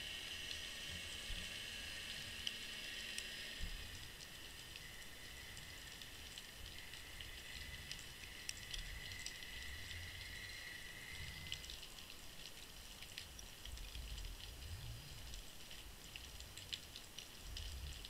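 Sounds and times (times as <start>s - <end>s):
faint steady whine: 0.0s - 18.0s
low rumble of moving water: 0.0s - 18.0s
faint clicks and crackles: 0.2s - 18.0s.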